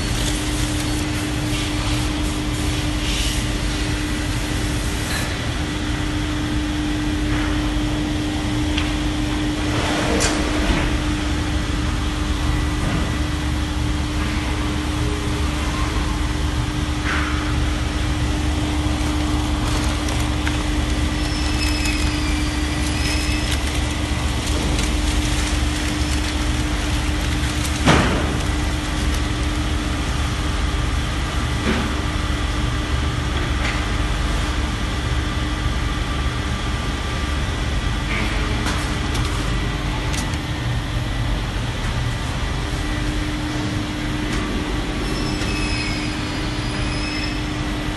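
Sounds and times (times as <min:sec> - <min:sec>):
machine drone with low hum: 0:00.0 - 0:47.9.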